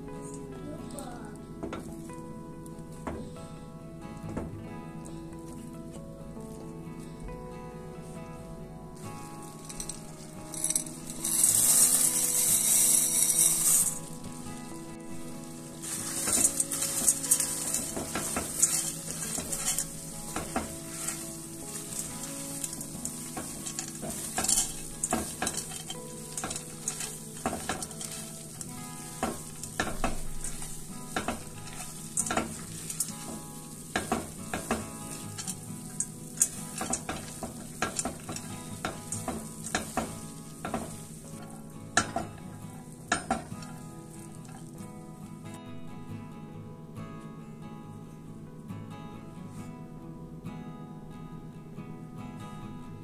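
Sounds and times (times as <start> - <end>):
sauce sizzling: 0.0 - 45.6
spatula scraping pan: 9.4 - 42.3.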